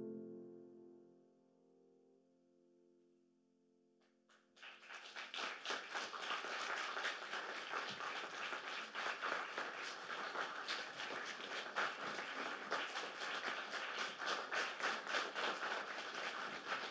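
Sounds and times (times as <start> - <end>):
grand piano chord: 0.0 - 2.2
audience applause: 4.6 - 16.9.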